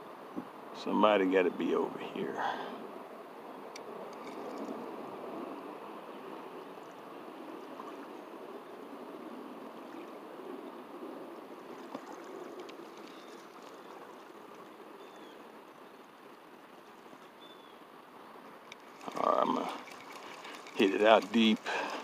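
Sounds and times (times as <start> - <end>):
rushing outdoor background noise: 0.0 - 22.0
faint bird chirps: 15.0 - 15.4, 17.3 - 17.8.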